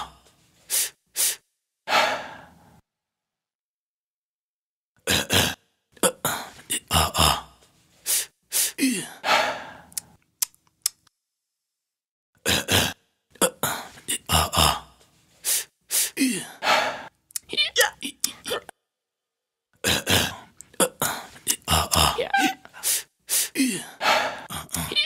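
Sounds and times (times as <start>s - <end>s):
person breathing hard and gasping: 0.0s - 2.8s, 8.0s - 10.1s, 15.4s - 17.1s, 20.0s - 24.9s
person moaning: 16.2s - 16.6s, 21.5s - 22.9s, 23.6s - 25.0s.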